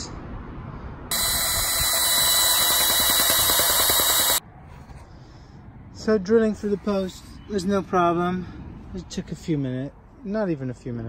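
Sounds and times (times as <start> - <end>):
cordless drill boring through wood: 1.1 - 4.4.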